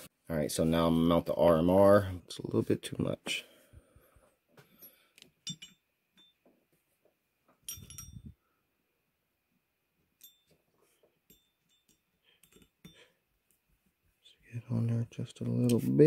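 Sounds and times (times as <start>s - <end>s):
metal clatter with ringing clink: 4.8s - 6.5s, 7.6s - 8.4s, 10.2s - 13.1s.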